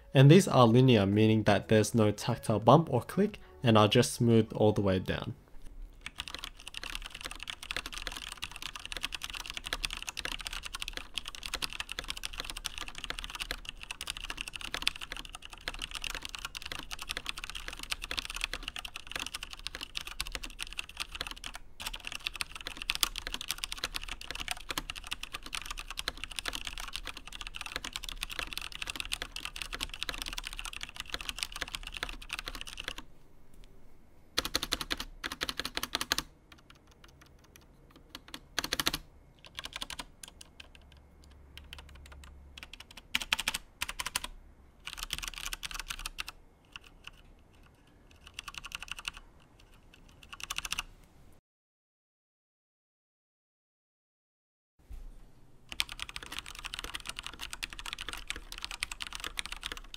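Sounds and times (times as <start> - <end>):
typing on mechanical keyboard: 6.0 - 33.0, 34.4 - 50.9, 55.7 - 59.9.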